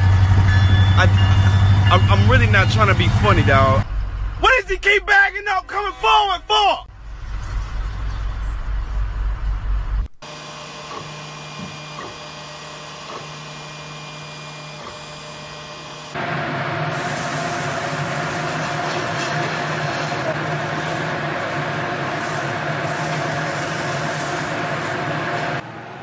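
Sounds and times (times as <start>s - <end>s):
low vehicle rumble: 0.0s - 4.5s, 6.9s - 10.2s
three d printer motors whirring: 10.2s - 16.2s.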